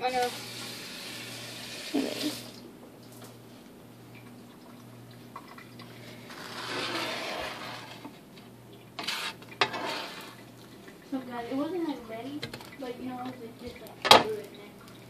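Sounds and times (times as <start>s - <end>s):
food sizzling in a frying pan: 0.0s - 2.5s
low steady hum: 0.0s - 15.0s.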